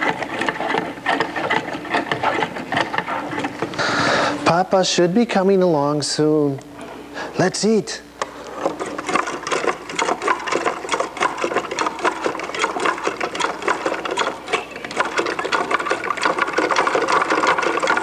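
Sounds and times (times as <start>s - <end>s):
wooden mechanism clattering: 8.6s - 18.0s.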